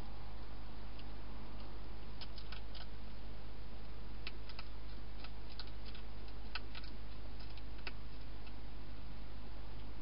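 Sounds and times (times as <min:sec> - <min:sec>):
steady low hum: 0:00.0 - 0:10.0
hedgehog crunching food: 0:00.9 - 0:03.2, 0:03.8 - 0:08.6.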